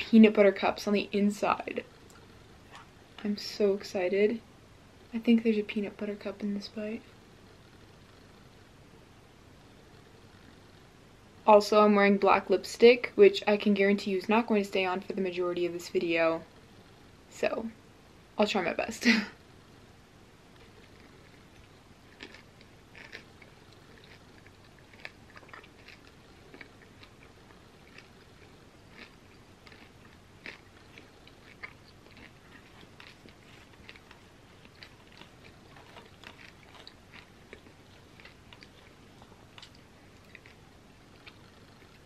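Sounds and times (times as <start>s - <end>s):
person chewing: 20.6s - 42.0s.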